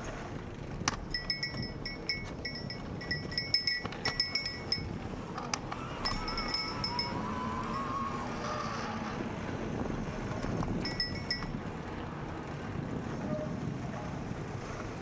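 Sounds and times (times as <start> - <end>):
wind noise: 0.0 - 15.0
faint wavering whine: 1.0 - 9.4, 10.8 - 11.7
bell-like metallic ringing: 1.1 - 5.0, 5.8 - 8.7, 10.8 - 11.6.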